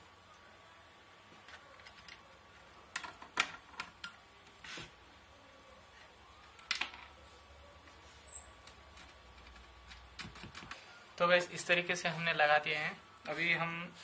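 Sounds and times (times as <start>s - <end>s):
wiring rustle: 6.4s - 14.0s.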